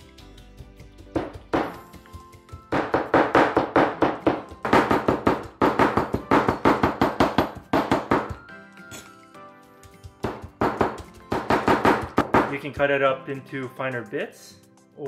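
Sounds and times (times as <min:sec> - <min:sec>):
cleaver chopping on plastic board: 0:02.8 - 0:08.4, 0:10.2 - 0:12.5.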